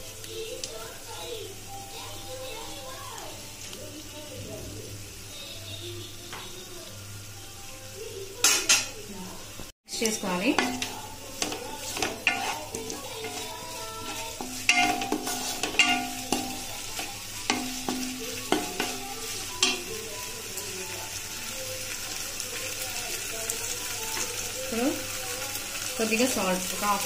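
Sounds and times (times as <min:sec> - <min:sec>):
onions frying sizzling: 0:00.0 - 0:27.0
spatula scraping and knocking pan: 0:10.0 - 0:20.0.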